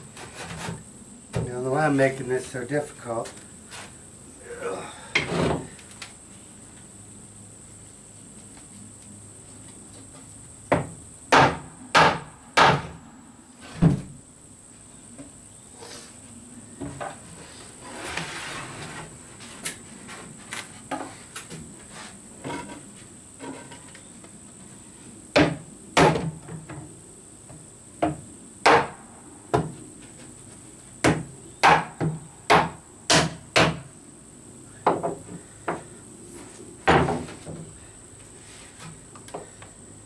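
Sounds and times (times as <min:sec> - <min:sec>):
wood scraping: 0:00.0 - 0:04.0, 0:16.8 - 0:25.0
hammer striking plywood: 0:10.7 - 0:13.0.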